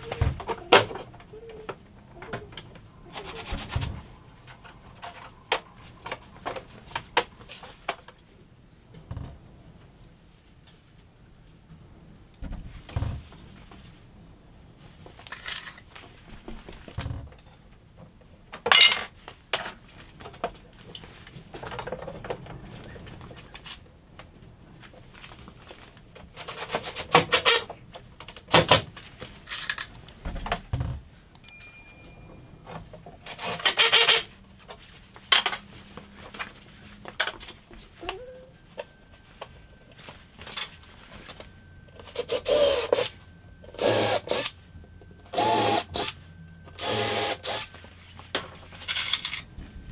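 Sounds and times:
knocks and handling noise: 0.0 - 8.3, 47.7 - 49.9
cordless drill driving screws: 33.3 - 34.2, 42.2 - 43.1, 43.8 - 44.5, 45.3 - 46.1, 46.8 - 47.7.

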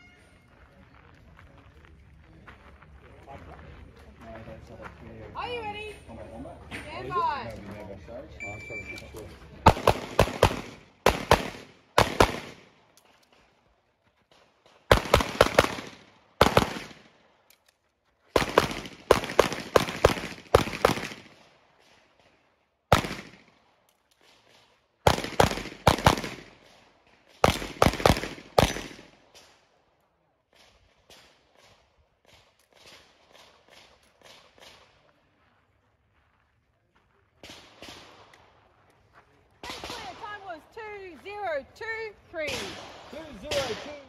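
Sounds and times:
pistol shots: 9.6 - 12.9, 14.8 - 17.2, 18.4 - 21.9, 22.9 - 23.6, 24.2 - 29.6, 42.4 - 44.0.

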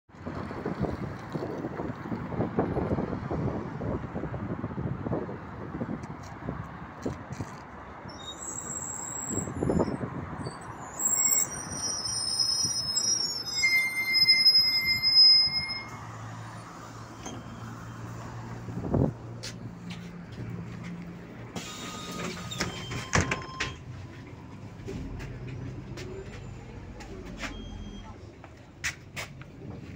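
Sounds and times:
bus brakes squealing: 8.0 - 18.3, 21.5 - 23.9, 24.9 - 28.4
bus doors hissing and clicking: 10.6 - 17.9, 21.4 - 23.9
bus engine idling: 10.6 - 29.9.

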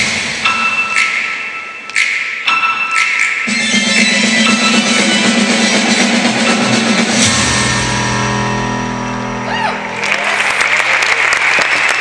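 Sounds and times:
audience applause: 9.8 - 12.0.

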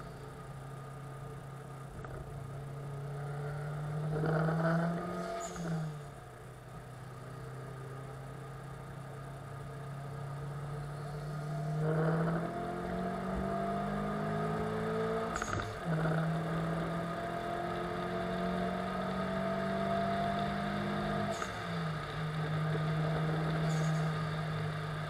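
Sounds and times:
car engine accelerating: 0.0 - 25.0.

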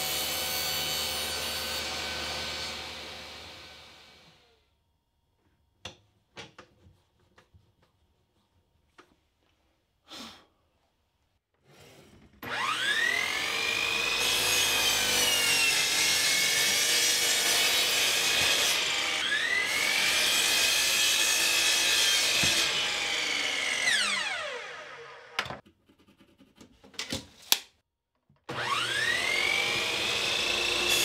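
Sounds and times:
saw cutting plywood: 0.0 - 4.4, 12.4 - 25.6, 28.5 - 31.0.

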